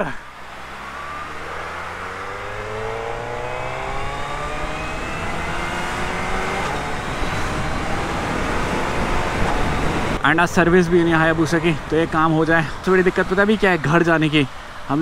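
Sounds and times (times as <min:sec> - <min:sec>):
motorcycle engine accelerating: 0:00.0 - 0:10.2.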